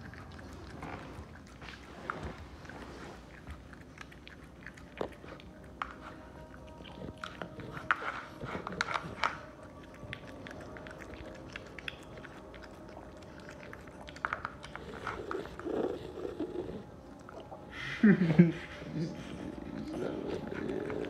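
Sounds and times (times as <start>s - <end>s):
puppy chewing wet food: 0.0s - 17.7s, 19.1s - 21.0s.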